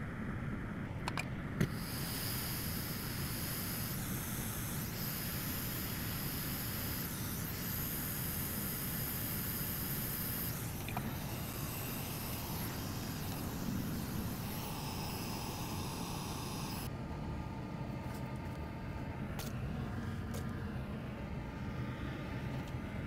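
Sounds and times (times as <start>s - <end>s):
steady hissing noise: 0.0s - 16.9s.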